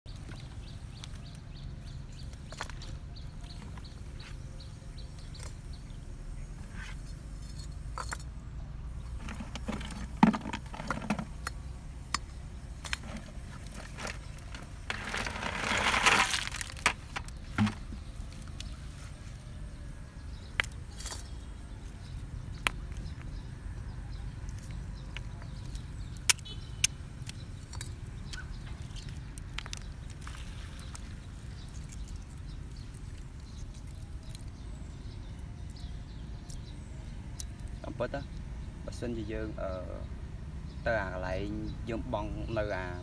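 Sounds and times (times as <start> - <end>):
snails clattering onto stony ground: 0.2 - 3.9, 9.1 - 18.8, 20.4 - 38.3
plastic bucket and bricks clicking: 9.2 - 11.5, 12.9 - 18.0.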